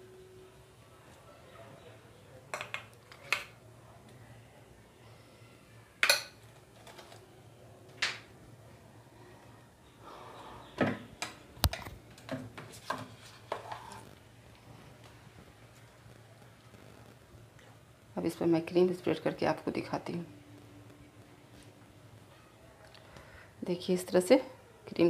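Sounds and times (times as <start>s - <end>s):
faint low hum: 0.0s - 25.0s.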